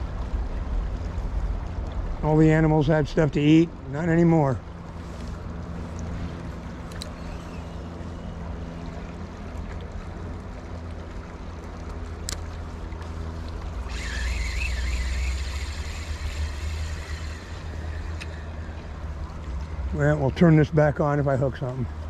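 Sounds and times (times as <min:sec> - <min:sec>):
river water rushing: 0:03.7 - 0:22.0
wavering high-pitched sound: 0:13.9 - 0:18.6.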